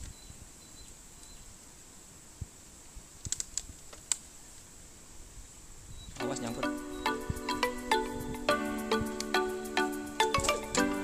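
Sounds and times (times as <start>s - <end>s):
faint steady high tone: 0.0s - 1.5s, 5.9s - 9.1s.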